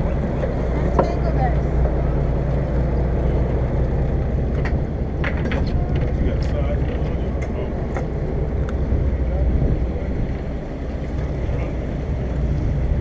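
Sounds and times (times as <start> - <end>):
boat engine rumbling: 0.0 - 13.0.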